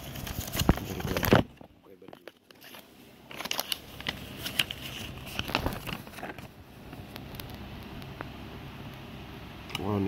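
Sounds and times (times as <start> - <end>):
paper crinkling and rustling: 0.0 - 7.6
faint steady hum: 0.0 - 10.0.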